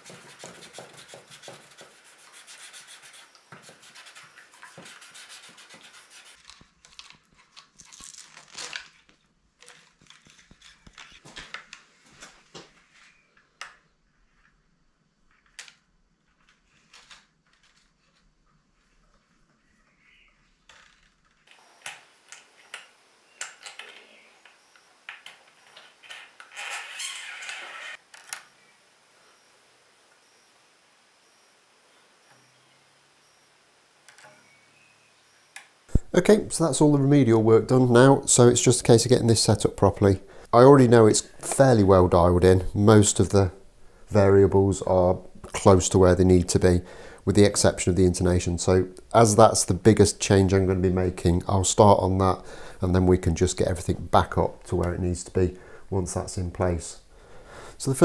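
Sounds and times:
small clicks and scrapes: 0.0 - 12.4
string scratching through bridge: 26.1 - 28.0.

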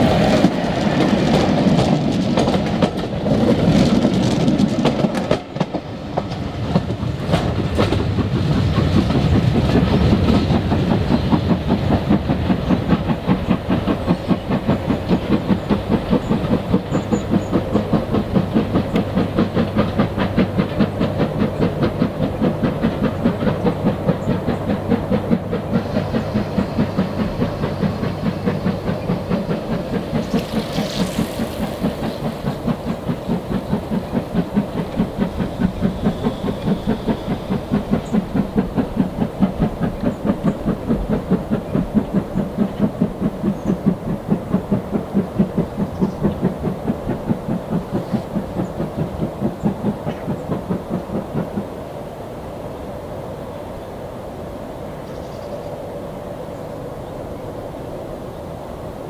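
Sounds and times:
steam train rhythmic beats: 0.0 - 52.5
steam hiss: 10.7 - 54.8.

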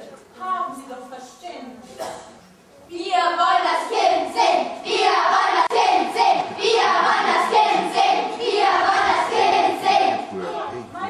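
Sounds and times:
children singing together: 2.9 - 10.9.

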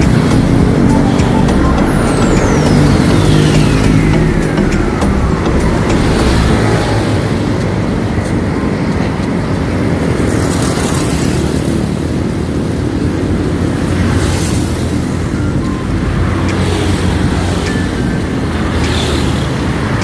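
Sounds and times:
falling whine: 0.0 - 9.9
highway traffic noise: 0.0 - 20.0.

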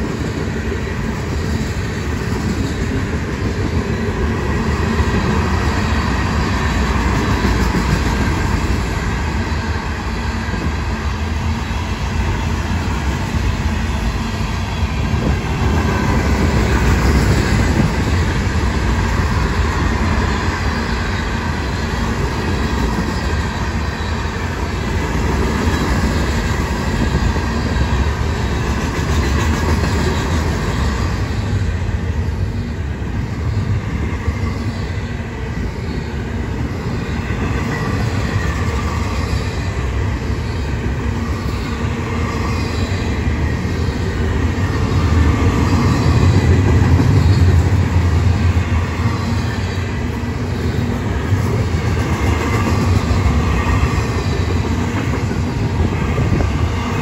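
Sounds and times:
train wheels rolling on rails: 0.0 - 57.0.

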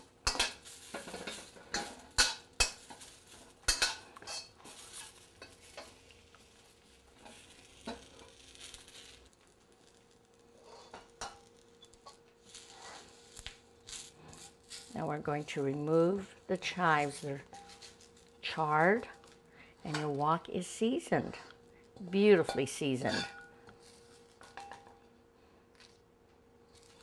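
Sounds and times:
faint sizzle: 0.0 - 27.0
metal spatula scraping a wok: 0.2 - 9.2, 10.5 - 11.5, 12.1 - 18.2, 21.1 - 24.8.

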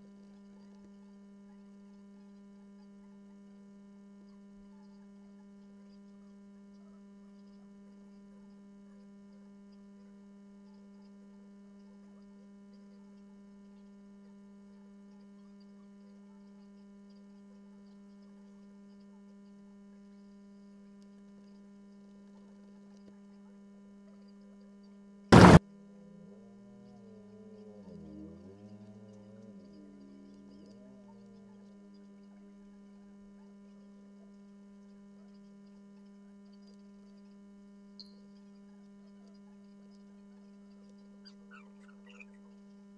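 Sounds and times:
loud burst of noise: 25.3 - 25.6
electrical hum: 25.3 - 35.8.

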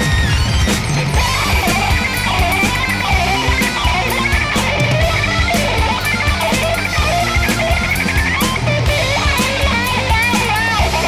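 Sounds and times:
guitar-led background music: 0.0 - 11.0.

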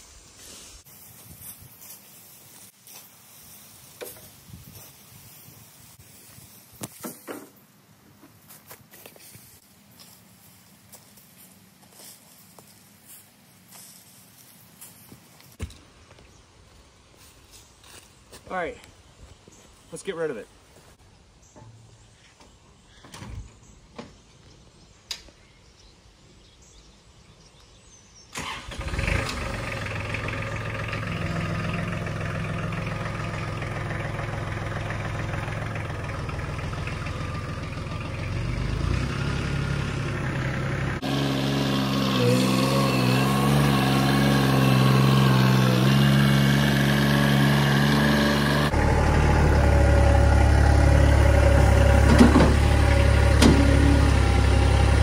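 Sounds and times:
tractor diesel engine running: 28.4 - 55.0.

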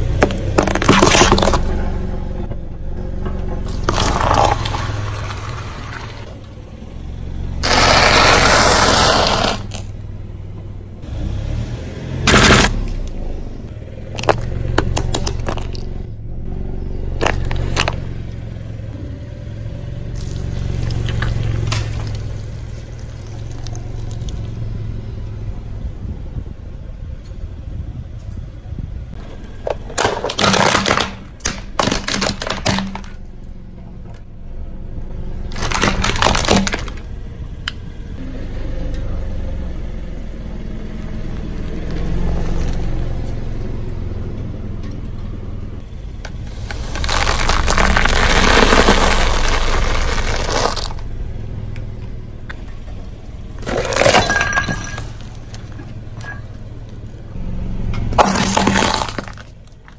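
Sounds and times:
tyre crushing brittle objects: 0.0 - 1.8, 3.6 - 6.2, 7.6 - 9.9, 12.3 - 13.1, 14.0 - 16.0, 17.2 - 18.2, 20.1 - 24.5, 29.2 - 33.3, 35.4 - 37.1, 46.2 - 51.1, 53.6 - 57.2, 58.1 - 59.9
low car rumble: 0.0 - 59.9.

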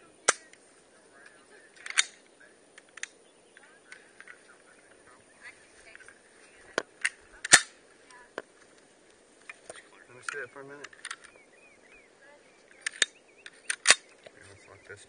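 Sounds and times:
rifle shots cracking: 0.2 - 0.5, 1.8 - 2.2, 7.0 - 7.8, 12.8 - 14.1.

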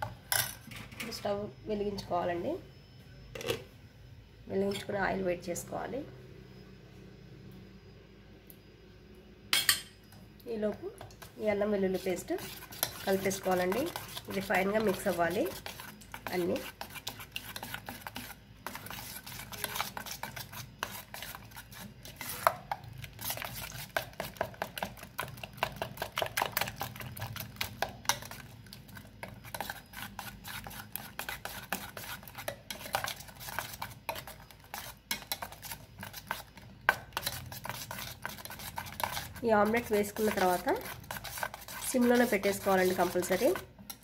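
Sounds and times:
utensil beating egg in metal bowl: 10.5 - 44.0.

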